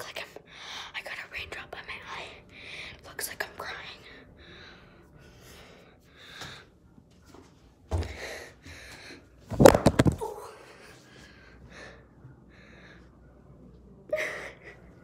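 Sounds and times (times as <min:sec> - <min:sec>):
faint breaths: 0:04.0 - 0:09.4, 0:10.6 - 0:13.6.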